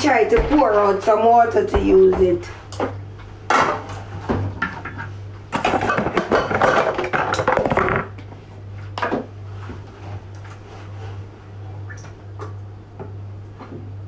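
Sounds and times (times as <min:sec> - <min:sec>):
steady low hum: 0:00.0 - 0:05.7.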